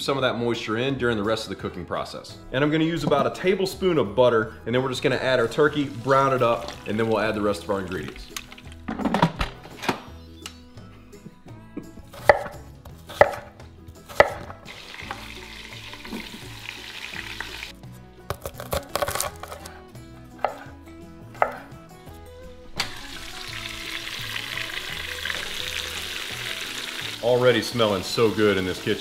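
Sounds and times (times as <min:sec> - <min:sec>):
butter sizzling in hot pot: 0:05.4 - 0:08.8, 0:14.6 - 0:17.8, 0:22.8 - 0:29.0
pressure cooker knocks and clunks: 0:08.9 - 0:09.6.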